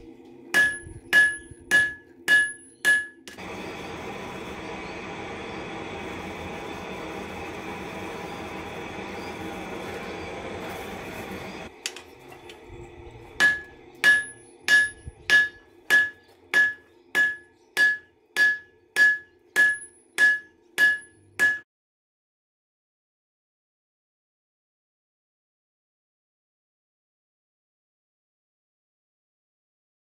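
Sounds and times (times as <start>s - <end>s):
hammer striking metal on anvil: 0.5s - 3.4s, 13.4s - 21.7s.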